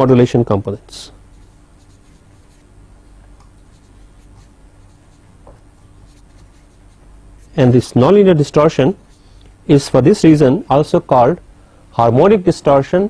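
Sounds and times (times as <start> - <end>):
low electrical hum: 0.0 - 13.0
faint scratching of writing: 1.3 - 7.7.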